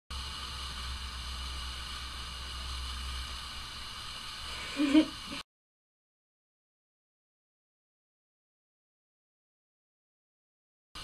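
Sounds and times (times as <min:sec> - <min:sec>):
low hum: 0:00.1 - 0:05.4
recording hiss: 0:00.1 - 0:05.4.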